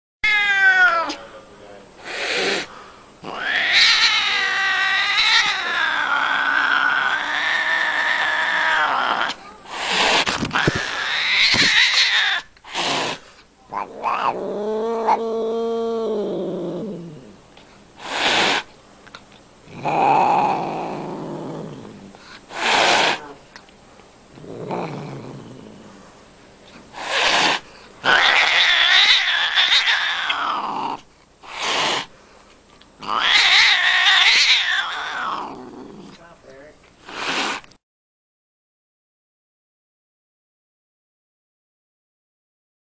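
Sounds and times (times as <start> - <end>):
cat yowling: 0.2 - 1.2, 3.2 - 9.6, 10.5 - 12.5, 13.7 - 16.2, 27.1 - 31.0, 33.0 - 35.9
cat growling: 0.3 - 1.2, 2.0 - 17.4, 19.6 - 23.5, 24.3 - 26.0, 26.9 - 32.1, 33.0 - 36.3
cat hissing: 0.3 - 1.3, 2.0 - 17.3, 18.0 - 18.7, 19.7 - 23.4, 26.7 - 32.2, 33.0 - 36.2, 37.0 - 37.8.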